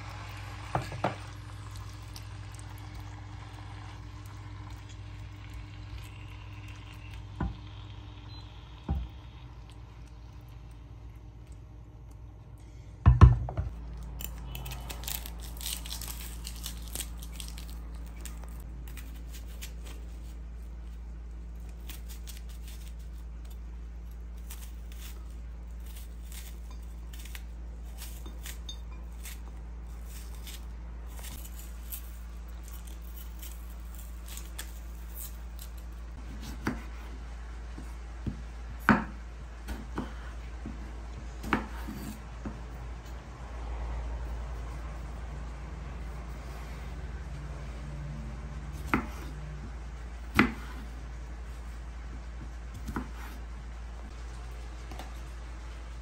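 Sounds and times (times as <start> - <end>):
knife cutting onion: 21.5 - 42.7, 48.7 - 51.1, 52.1 - 53.5
knife slicing tomato on board: 34.3 - 40.8, 41.4 - 42.7, 48.7 - 51.0, 52.7 - 53.4.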